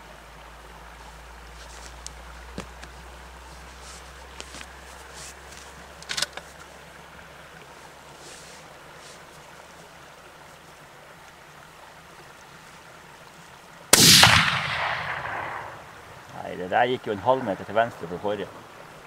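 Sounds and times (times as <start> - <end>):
rifle shot echoing: 13.9 - 16.1.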